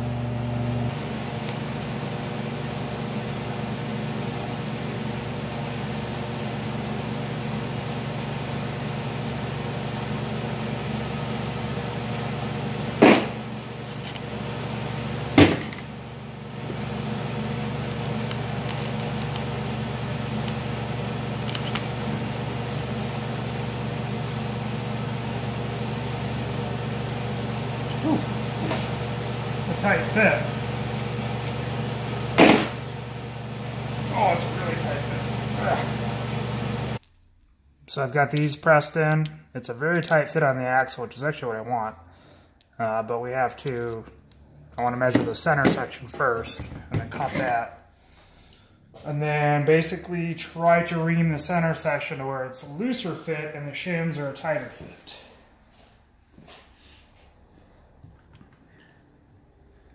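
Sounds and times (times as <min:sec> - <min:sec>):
workshop mechanical hum: 0:00.0 - 0:59.9
sharp knocks: 0:13.0 - 0:13.4, 0:32.4 - 0:32.8.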